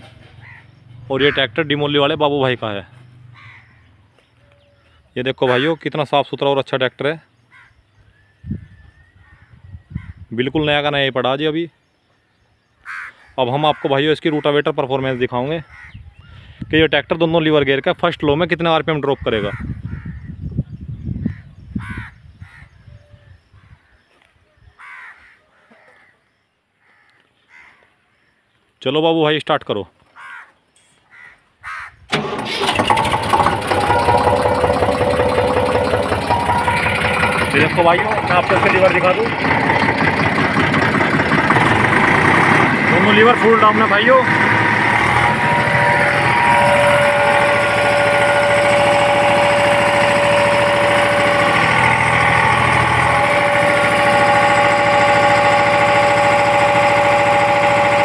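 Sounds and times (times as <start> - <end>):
tractor diesel engine starting: 32.1 - 58.0.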